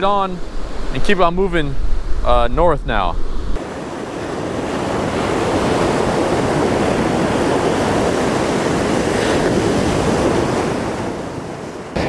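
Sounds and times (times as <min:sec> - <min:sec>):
ocean waves breaking on beach: 0:03.6 - 0:12.0.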